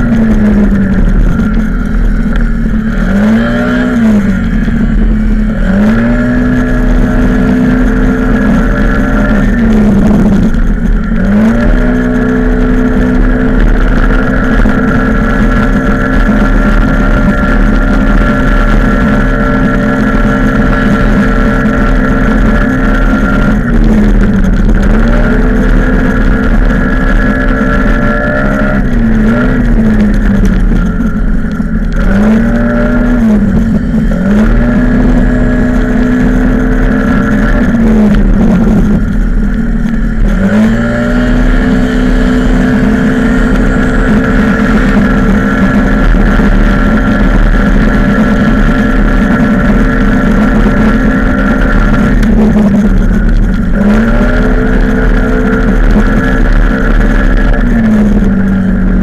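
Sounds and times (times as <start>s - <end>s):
motorbike engine at high revs: 0.0s - 59.0s.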